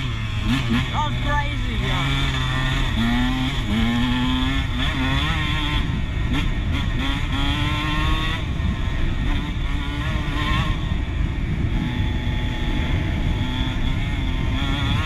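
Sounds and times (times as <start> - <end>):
dirt bike engine: 0.0 - 15.0
wind on microphone: 0.0 - 15.0.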